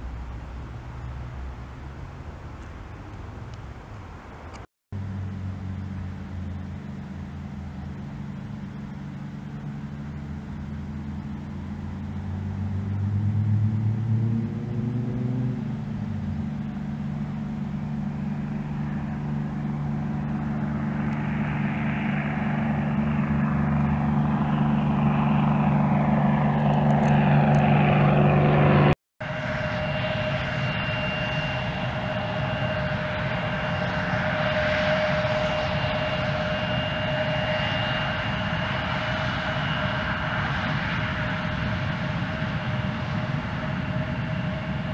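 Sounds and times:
jet engines whining: 0.0 - 44.9
propeller plane taking off: 0.0 - 44.9.

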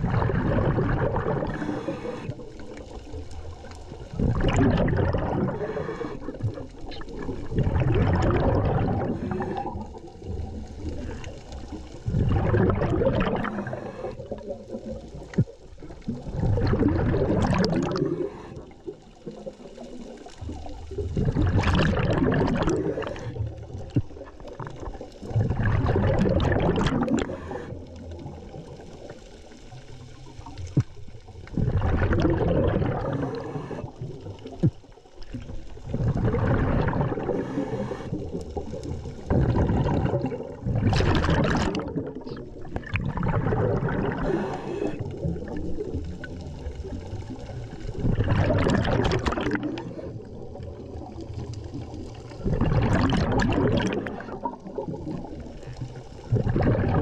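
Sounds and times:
bubbling exhaled air underwater: 0.0 - 57.0
diver inhaling through regulator: 0.4 - 2.7, 4.2 - 6.6, 8.2 - 10.0, 12.1 - 14.4, 17.3 - 18.9, 22.4 - 23.4, 26.6 - 27.9, 32.7 - 34.1, 36.0 - 38.3, 43.4 - 45.3.

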